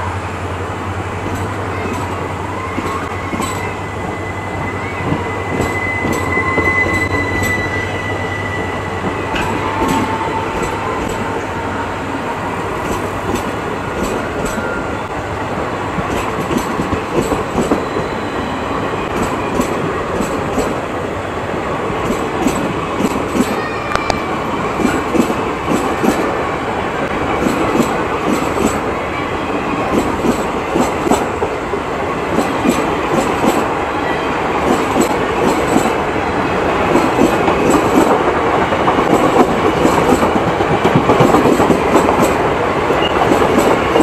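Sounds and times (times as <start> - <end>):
train wheels rumbling on rail: 0.0 - 44.0
rail-joint clicks: 1.1 - 11.6, 12.6 - 15.0, 16.0 - 21.0, 21.9 - 26.4, 27.1 - 29.0, 29.6 - 33.8, 34.6 - 44.0
thin wheel squeal: 2.6 - 11.3.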